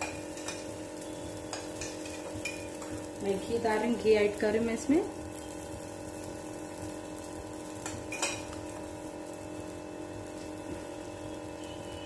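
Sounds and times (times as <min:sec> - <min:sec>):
faint frying sizzle: 0:00.0 - 0:12.0
metal spoon clinking: 0:07.8 - 0:08.5.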